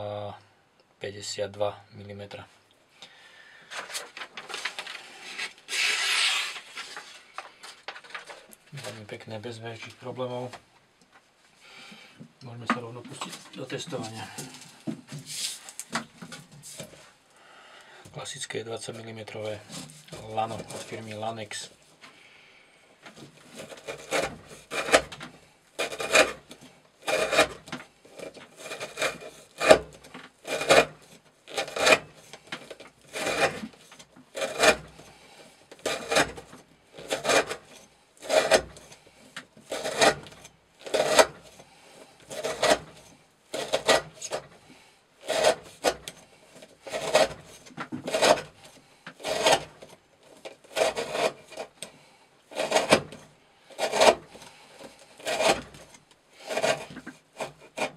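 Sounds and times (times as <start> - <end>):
knife slicing through rope: 5.3 - 7.0, 23.5 - 25.2, 25.8 - 35.1, 35.8 - 39.0, 39.7 - 41.6, 42.2 - 44.5, 52.5 - 57.9.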